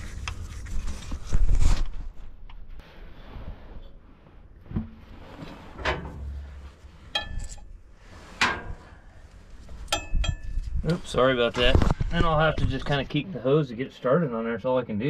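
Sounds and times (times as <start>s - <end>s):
metal tools knocking and clinking: 7.1s - 7.6s, 9.9s - 10.6s.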